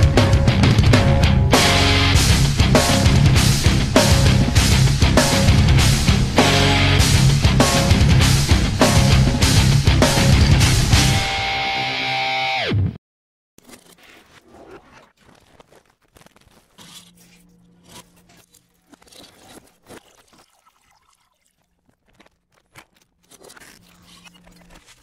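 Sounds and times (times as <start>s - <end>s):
crackling and scraping: 13.6s - 20.6s, 21.6s - 25.0s.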